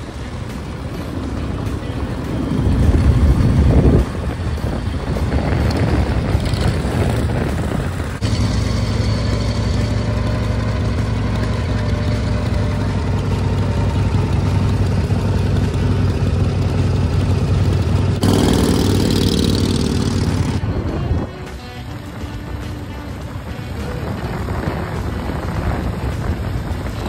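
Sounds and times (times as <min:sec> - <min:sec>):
motorcycles idling: 0:00.0 - 0:20.7
motorcycle riding past: 0:01.8 - 0:20.9.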